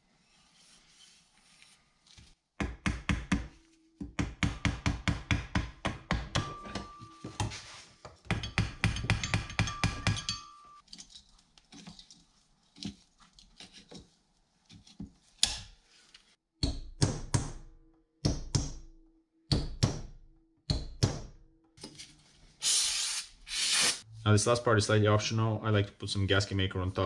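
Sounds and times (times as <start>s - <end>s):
low metallic ringing tone: 6.4s - 7.4s.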